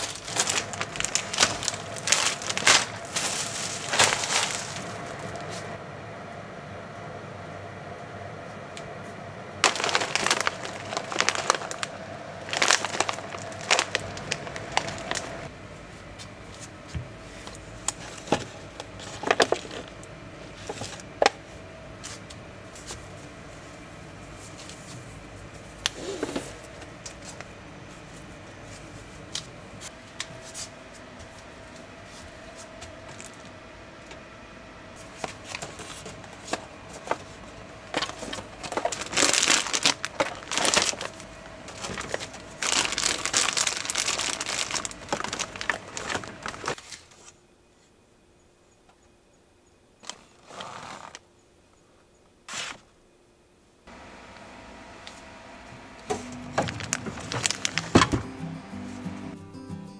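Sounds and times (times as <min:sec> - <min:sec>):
plastic food packaging crinkling: 0:00.0 - 0:05.5, 0:09.6 - 0:15.5, 0:17.8 - 0:20.0, 0:35.2 - 0:47.3, 0:56.2 - 0:58.3.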